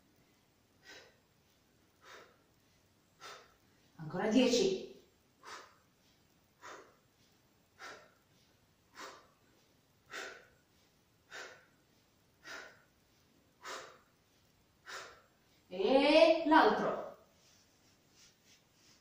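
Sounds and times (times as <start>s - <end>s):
woman breathing out in puffs: 0.8s - 4.0s, 5.4s - 15.6s.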